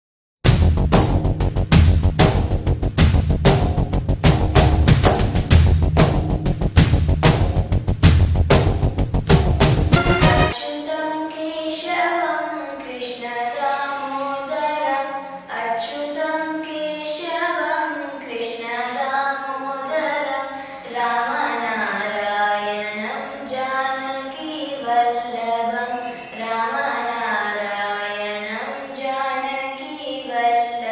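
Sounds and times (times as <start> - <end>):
girl singing: 10.5 - 30.9.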